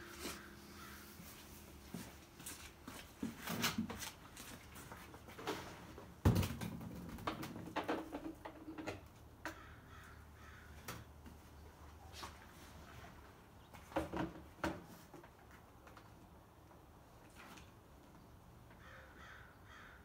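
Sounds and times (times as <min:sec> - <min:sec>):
bird calling: 0:00.1 - 0:01.2
knocks and clatter of tools on bike: 0:04.8 - 0:09.6, 0:13.8 - 0:16.1.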